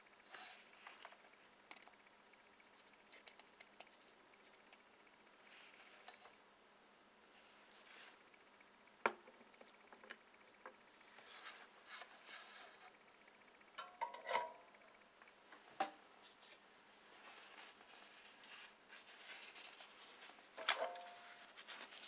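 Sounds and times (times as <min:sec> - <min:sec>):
handling of circuit board and tools: 0:17.4 - 0:22.0.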